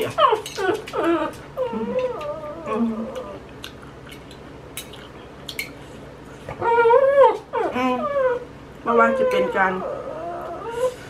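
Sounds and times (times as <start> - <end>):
dog whining: 0.0 - 3.5, 6.4 - 11.0.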